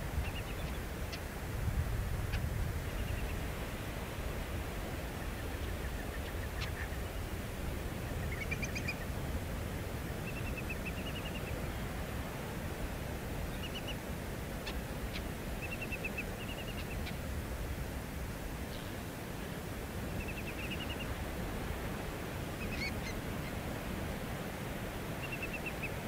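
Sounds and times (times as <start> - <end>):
birds chirping: 22.6 - 23.7.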